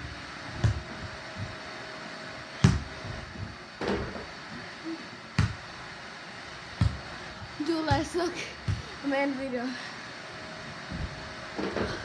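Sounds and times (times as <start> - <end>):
feet landing on floor: 0.6 - 1.5.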